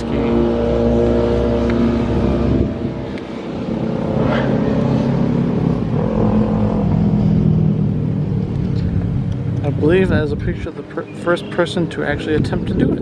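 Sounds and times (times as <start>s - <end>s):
engine shifting in pitch: 0.0s - 12.2s
engine drone: 0.0s - 13.0s.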